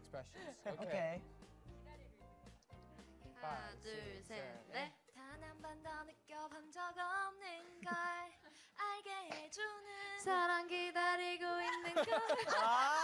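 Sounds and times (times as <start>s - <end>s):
woman singing unaccompanied: 3.6s - 12.6s.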